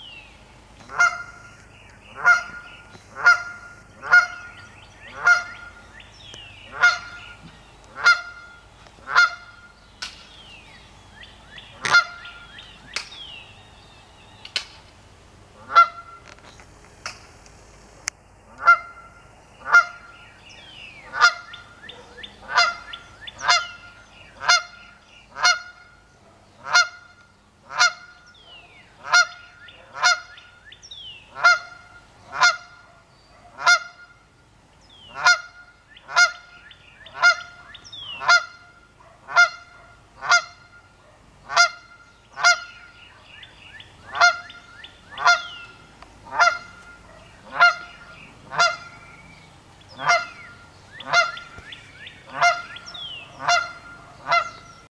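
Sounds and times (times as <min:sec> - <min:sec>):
goose honking: 0:00.9 - 0:05.8, 0:06.6 - 0:09.7, 0:11.8 - 0:12.4, 0:15.6 - 0:16.4, 0:18.5 - 0:20.1, 0:21.0 - 0:26.0, 0:26.6 - 0:28.3, 0:29.0 - 0:30.4, 0:31.3 - 0:32.9, 0:33.6 - 0:34.2, 0:35.0 - 0:43.0, 0:44.0 - 0:49.2, 0:49.9 - 0:54.8.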